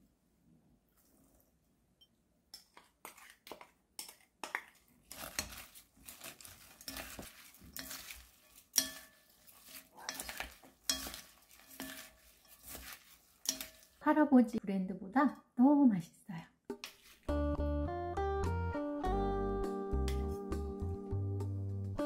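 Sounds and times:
wet salad being tossed: 0:03.1 - 0:14.0, 0:16.8 - 0:17.3
wooden utensils knocking on bowl: 0:06.8 - 0:14.0.

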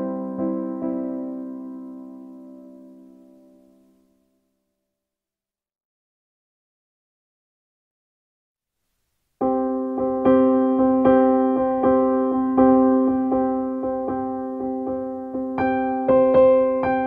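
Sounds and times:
piano-like keyboard music: 0:00.0 - 0:04.2, 0:09.4 - 0:17.0.

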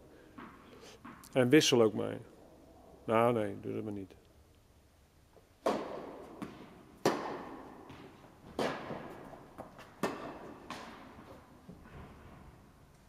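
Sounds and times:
tennis ball struck by rackets: 0:00.3 - 0:01.3, 0:05.6 - 0:11.5
tennis ball bouncing: 0:00.3 - 0:01.4, 0:05.6 - 0:12.4.

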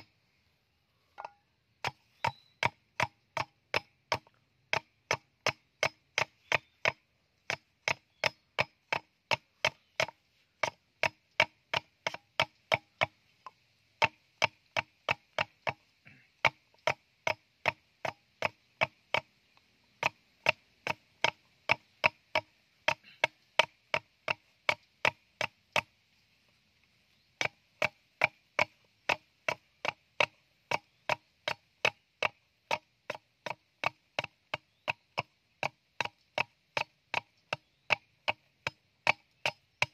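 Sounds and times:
machete chopping bamboo: 0:01.2 - 0:13.2, 0:14.0 - 0:19.3, 0:20.0 - 0:25.9, 0:27.4 - 0:39.9.

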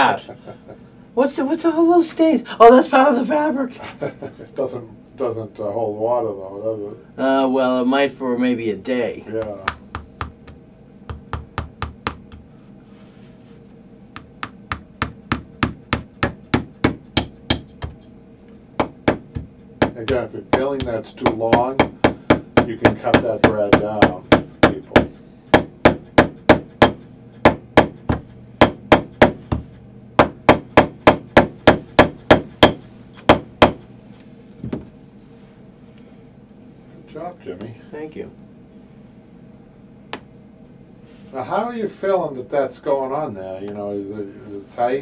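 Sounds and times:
tack hammer tapping: 0:09.4 - 0:12.5, 0:14.1 - 0:18.0, 0:18.8 - 0:33.8.

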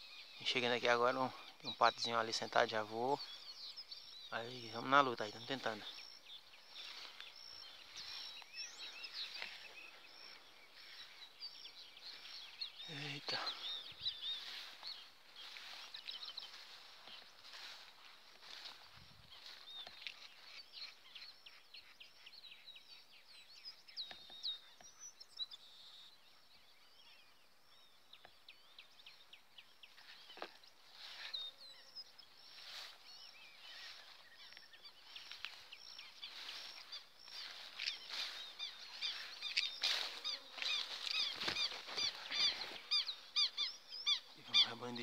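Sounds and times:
ducks whistling calls: 0:33.6 - 0:44.8.

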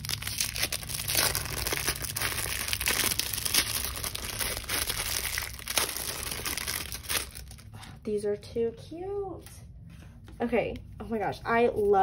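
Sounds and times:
packaging crinkling and rustling: 0:00.0 - 0:07.7.

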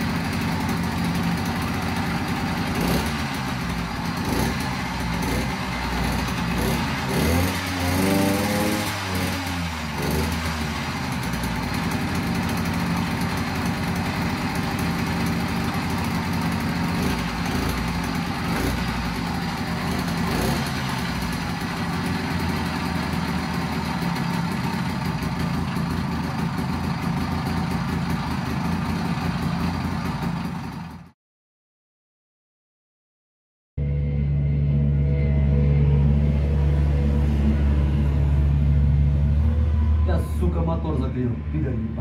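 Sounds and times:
small two-stroke engine idling: 0:00.0 - 0:31.2.

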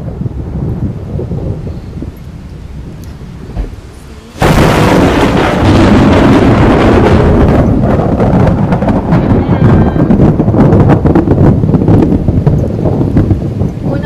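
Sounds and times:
rain: 0:00.0 - 0:14.0
thunderclap with rolling rumble: 0:00.0 - 0:14.0.

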